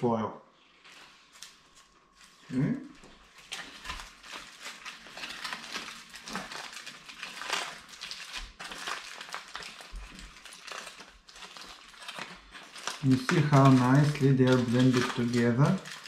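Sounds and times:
aluminium foil crinkling: 0.8s - 16.0s.

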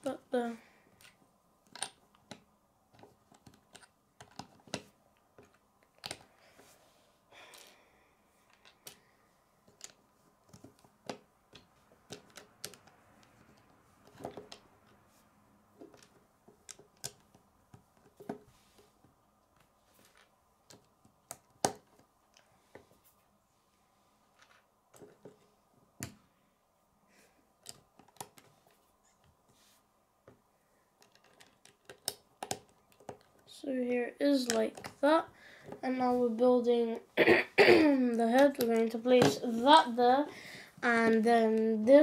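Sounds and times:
plastic bricks clicking together: 1.0s - 2.4s, 9.7s - 13.0s, 31.0s - 33.5s.

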